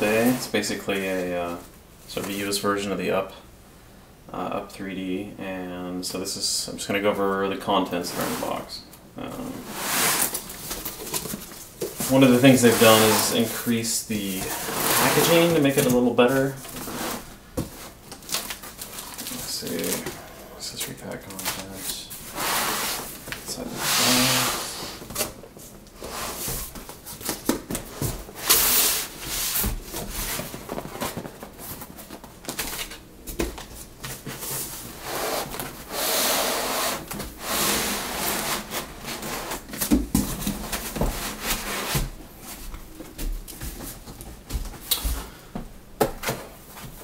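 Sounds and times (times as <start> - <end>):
cardboard and foam rustling: 9.4 - 45.4.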